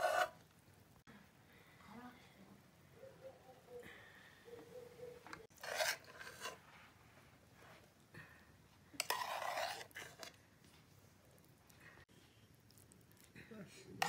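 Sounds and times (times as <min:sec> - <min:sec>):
utensil scraping frying pan: 0:00.0 - 0:00.4, 0:05.5 - 0:06.7, 0:09.0 - 0:10.4.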